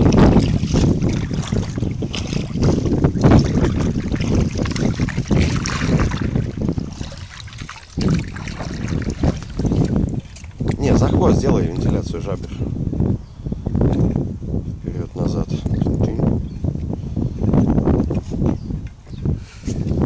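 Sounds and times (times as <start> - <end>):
paddle in water: 0.0 - 12.1
water lapping against inflatable boat: 0.0 - 12.2
wind rumble on microphone: 0.0 - 20.0.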